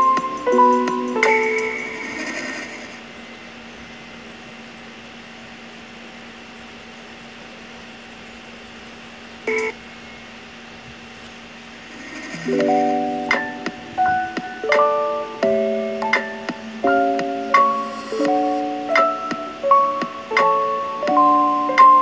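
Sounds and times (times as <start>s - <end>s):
steady hum: 0.0s - 22.0s
short beep: 9.5s - 9.7s.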